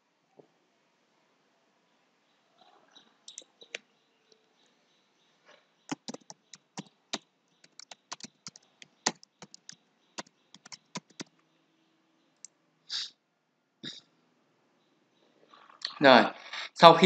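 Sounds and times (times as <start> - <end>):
keyboard typing clicks: 5.9 - 6.9, 7.6 - 11.3.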